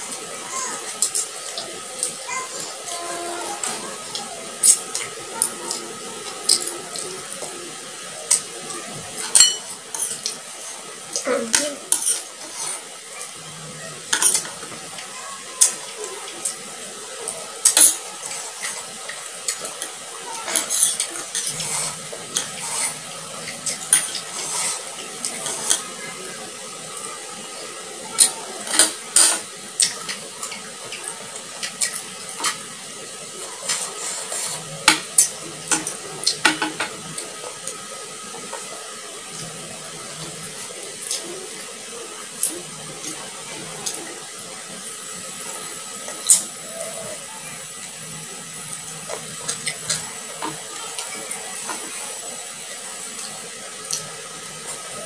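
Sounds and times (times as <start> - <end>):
spoon clinking against plates: 9.2 - 10.4.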